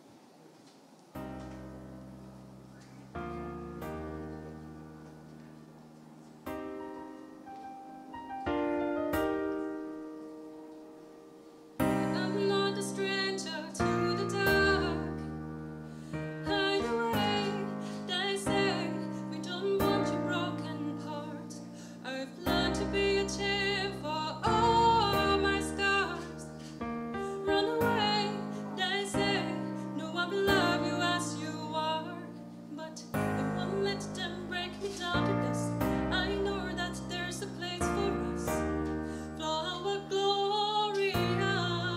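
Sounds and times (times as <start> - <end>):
piano chords: 1.1 - 41.9
woman singing: 11.8 - 15.3, 16.4 - 26.6, 27.2 - 41.9.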